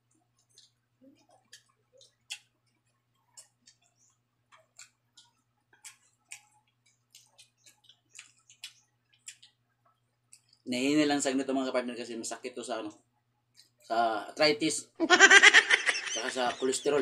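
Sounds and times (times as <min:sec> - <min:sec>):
person chewing food: 0:00.0 - 0:10.7, 0:13.4 - 0:13.9.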